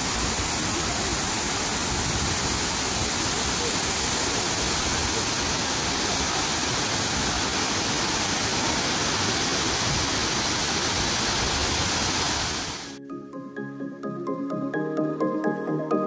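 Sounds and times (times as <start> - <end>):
waterfall and river rushing: 0.0 - 13.0.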